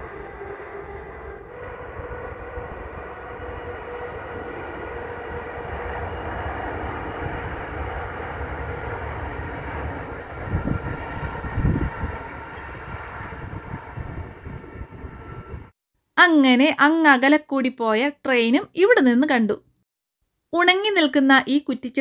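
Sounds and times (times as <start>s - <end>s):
distant train rumble: 0.0s - 15.7s
wind buffeting microphone: 0.0s - 15.7s.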